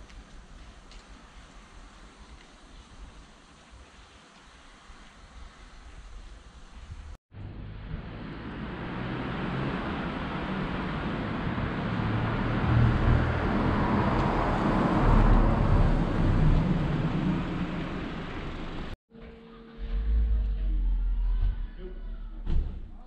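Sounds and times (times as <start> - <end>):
car driving by: 7.4 - 19.0.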